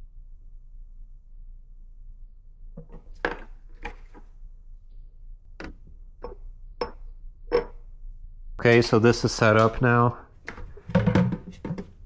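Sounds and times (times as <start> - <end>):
plastic bucket knocks and clicks: 10.5 - 12.0.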